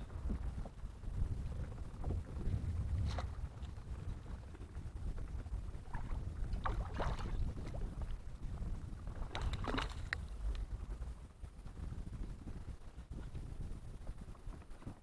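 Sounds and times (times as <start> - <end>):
low wind rumble on microphone: 0.0 - 15.0.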